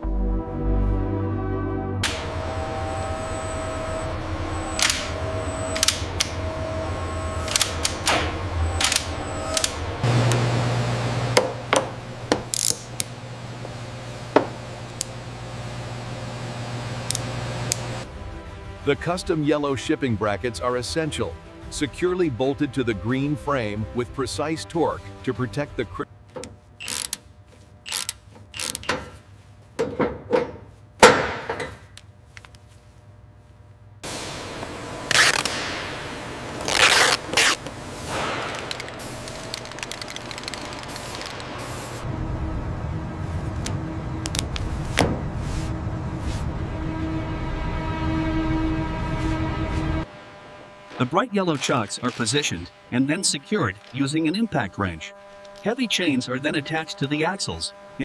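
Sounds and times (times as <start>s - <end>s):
steady low hum: 0.0s - 58.0s
mechanical tool clicks: 4.8s - 6.4s, 7.4s - 8.2s, 8.8s - 9.8s, 12.5s - 13.1s, 26.8s - 27.2s, 27.9s - 29.0s, 38.5s - 41.4s.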